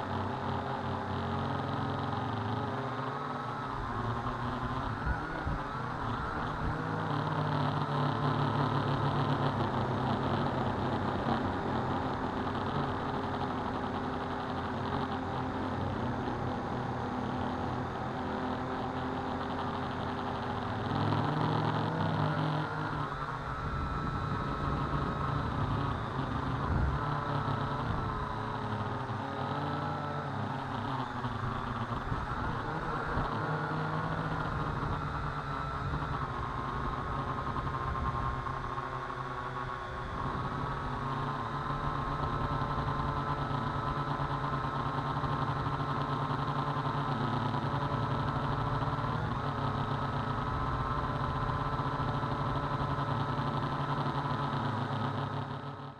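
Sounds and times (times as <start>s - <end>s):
quadcopter motors whining: 0.0s - 55.9s.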